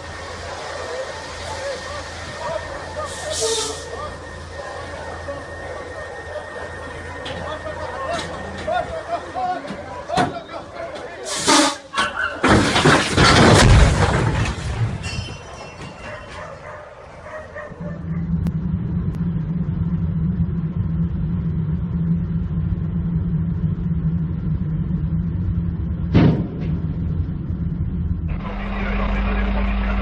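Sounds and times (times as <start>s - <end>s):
car engine and road drone: 0.0s - 30.0s
sand rushing from trailer: 11.2s - 11.9s
sharp bang: 26.1s - 27.1s.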